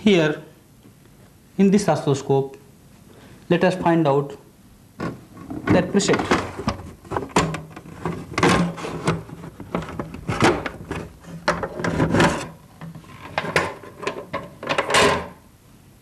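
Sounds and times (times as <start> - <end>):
knocks clicks and scraping rubs: 5.0 - 15.4.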